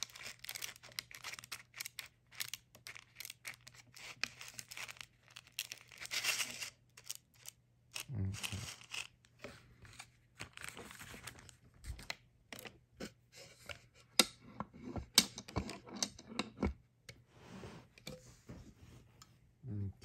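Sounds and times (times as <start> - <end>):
scratchy handling rustle: 0.0 - 12.0.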